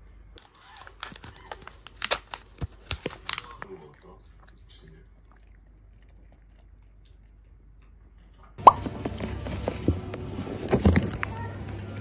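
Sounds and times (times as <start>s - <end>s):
supermarket hum: 8.6s - 12.0s.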